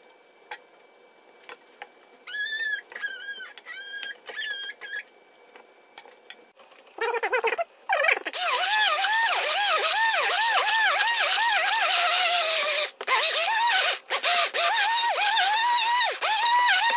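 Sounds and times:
short high-pitched squeaks: 2.3s - 5.1s, 8.4s - 16.9s
stick blender whirring: 8.2s - 16.9s.

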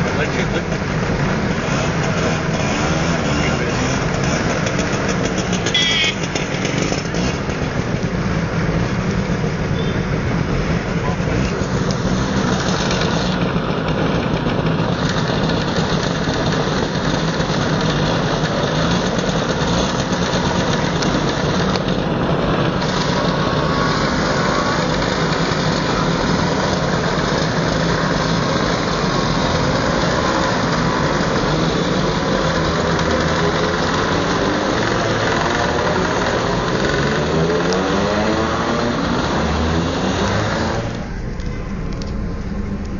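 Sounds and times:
engines revving: 0.0s - 42.9s
scooter engines running: 0.0s - 42.9s.

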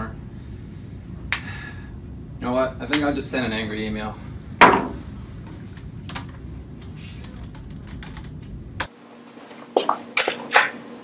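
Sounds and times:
low room hum: 0.0s - 11.0s
computer keyboard typing: 7.3s - 8.5s.

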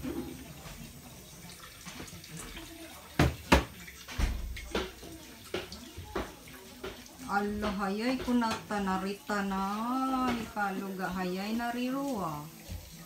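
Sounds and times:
tap running into a metal sink: 1.8s - 8.8s
dishware clattering against sink: 1.9s - 10.8s.

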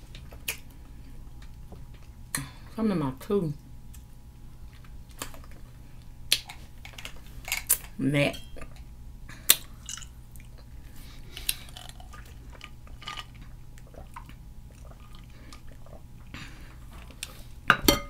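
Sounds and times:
tableware clicks and knocks: 17.7s - 18.0s.

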